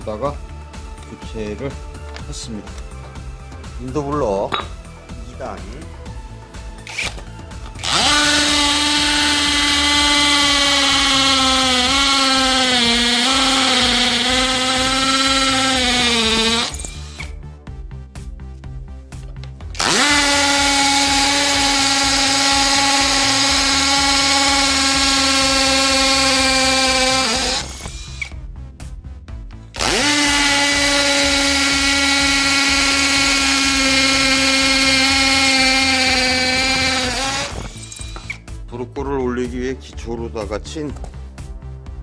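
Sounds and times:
cordless drill whining: 6.8s - 17.4s, 19.7s - 28.4s, 29.7s - 38.4s
drill bit into concrete: 6.8s - 17.4s, 19.7s - 28.3s, 29.8s - 38.4s.

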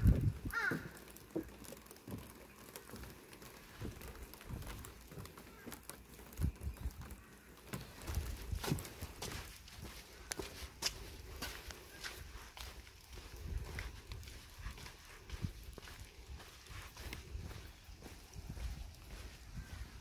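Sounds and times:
footsteps on wet stone: 0.0s - 20.0s
crow cawing: 0.5s - 1.2s, 7.1s - 7.9s.

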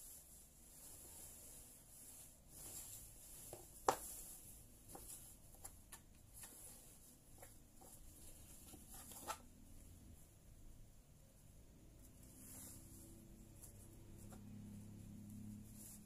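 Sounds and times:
cloth rustling: 0.0s - 9.8s, 11.9s - 16.0s.

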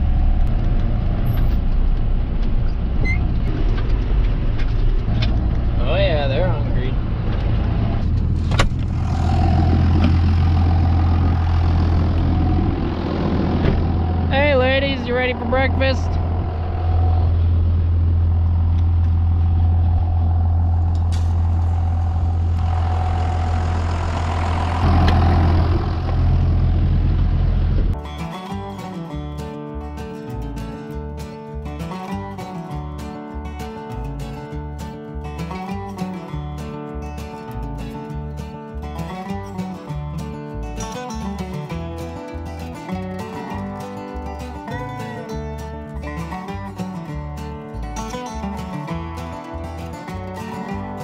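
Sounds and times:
tractor engine whining: 0.0s - 29.3s
bass line: 0.0s - 51.0s
country music plucked strings: 5.0s - 26.3s, 27.9s - 51.0s.

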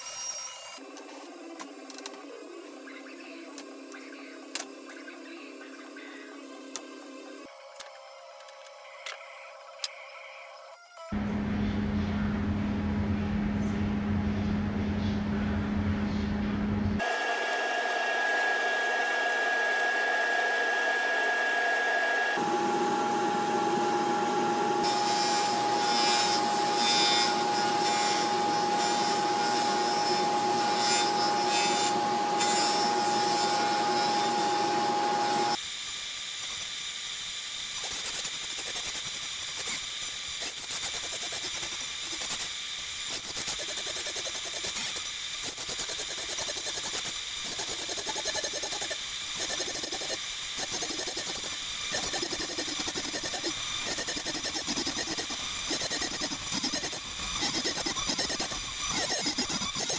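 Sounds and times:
table saw whining: 0.0s - 2.7s, 17.0s - 35.6s, 38.6s - 59.9s
saw blade cutting wood: 17.0s - 35.6s, 37.8s - 59.9s.

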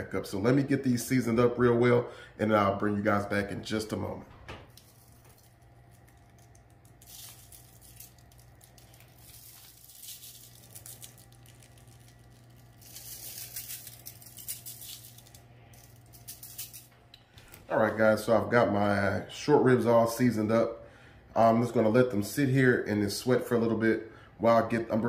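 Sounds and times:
low steady hum: 0.0s - 25.0s
spice shaker rattling: 4.7s - 16.9s.

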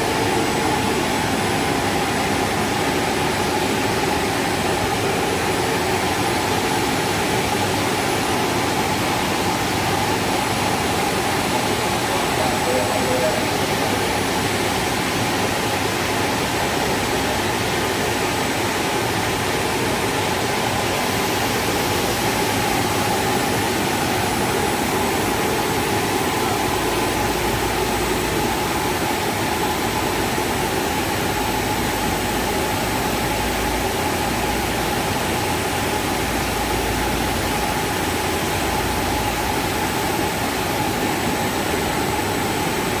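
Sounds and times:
faint machine whine: 0.0s - 17.4s
film extrusion machine running: 0.0s - 43.0s.

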